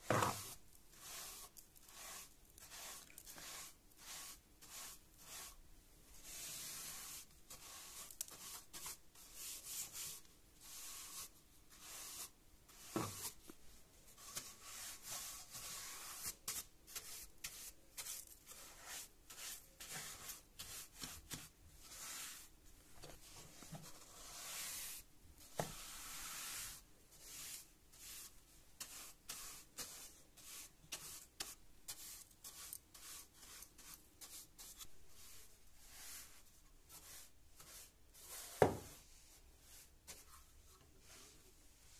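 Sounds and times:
brush bristles swishing: 25.7s - 41.9s.

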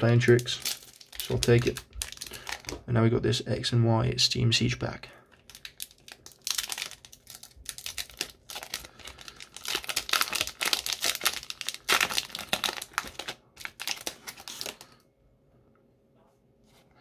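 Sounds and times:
foil wrapper tearing and crinkling: 0.0s - 2.8s, 5.4s - 15.0s.

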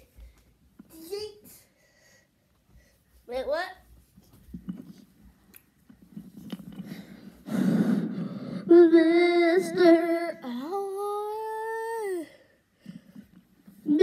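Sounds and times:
breath into microphone: 6.8s - 8.7s
child singing: 8.7s - 12.2s.

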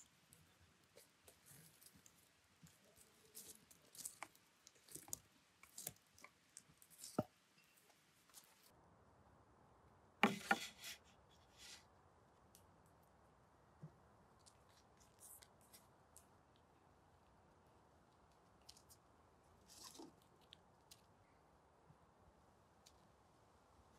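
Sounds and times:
object set down on a wooden table: 10.2s - 11.0s.

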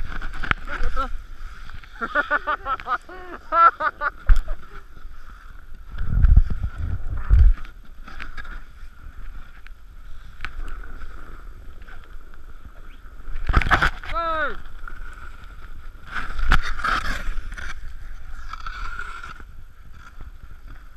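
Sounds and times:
snowboard scraping over snow: 0.0s - 20.9s
person laughing: 0.7s - 1.2s, 1.9s - 4.8s.

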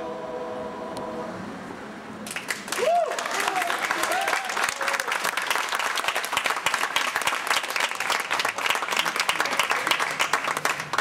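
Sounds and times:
crowd applauding: 2.2s - 11.0s.

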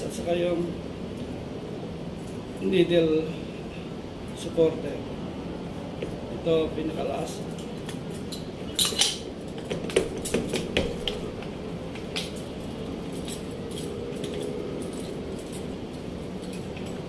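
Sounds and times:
small steel parts clinking: 7.5s - 9.3s, 12.2s - 17.0s.

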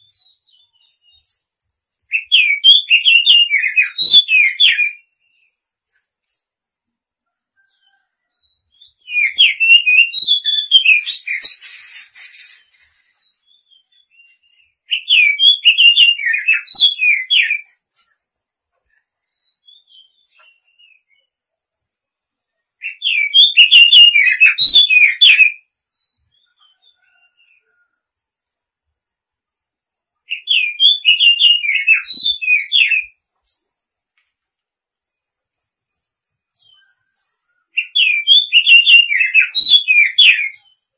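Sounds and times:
bird singing whistled notes: 2.1s - 5.6s, 7.6s - 17.8s, 19.2s - 21.3s, 22.8s - 27.8s, 30.3s - 33.2s, 35.9s - 40.9s.

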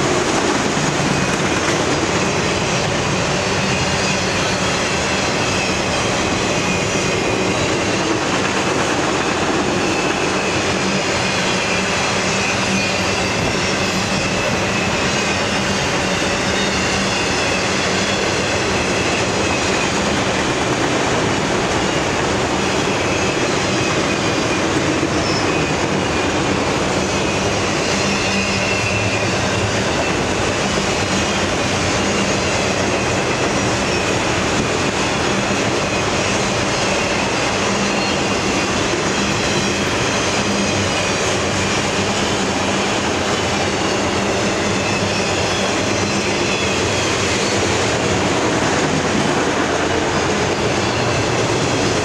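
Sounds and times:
steel wheels rumbling on rail: 0.0s - 52.0s
wheel squeal: 9.6s - 20.2s, 21.7s - 26.4s, 27.0s - 47.7s.

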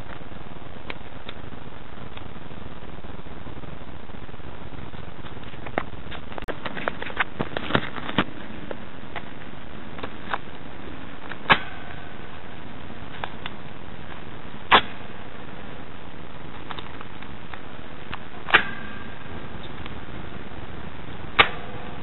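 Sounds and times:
steady background hiss: 0.0s - 22.0s.

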